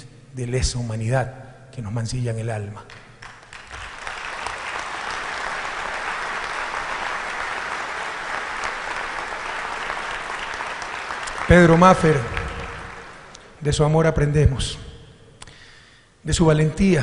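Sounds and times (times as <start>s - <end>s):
audience applauding: 3.2s - 13.5s.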